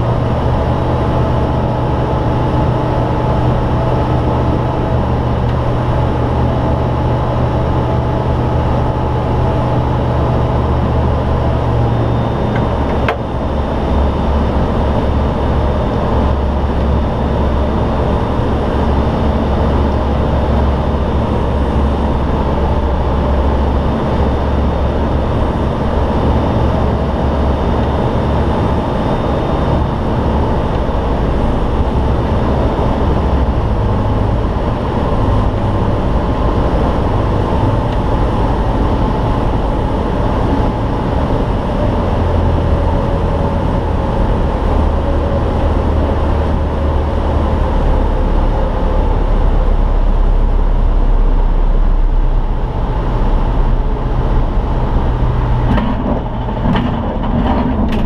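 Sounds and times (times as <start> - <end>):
light aircraft engine and propeller: 0.0 - 58.0.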